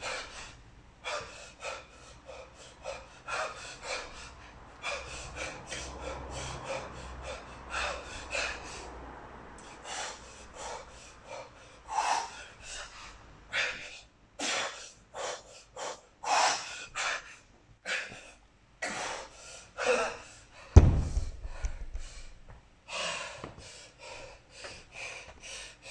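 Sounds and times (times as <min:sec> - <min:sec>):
man breathing hard: 0:00.0 - 0:25.9
forceful exhales: 0:20.6 - 0:23.8.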